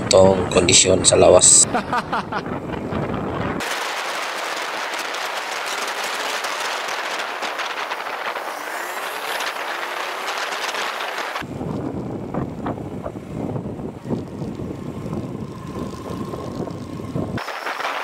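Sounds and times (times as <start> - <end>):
motorcycle road noise: 0.0 - 18.0
rushing wind: 0.0 - 18.0
motorcycle engine: 1.8 - 18.0.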